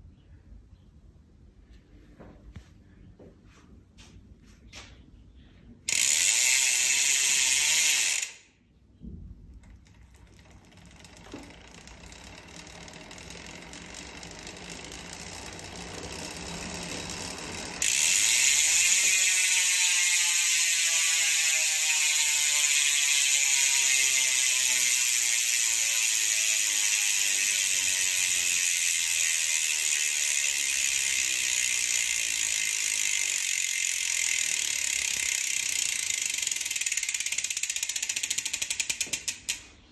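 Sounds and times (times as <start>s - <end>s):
bike hub freewheel buzzing: 5.8s - 8.6s, 9.6s - 39.8s.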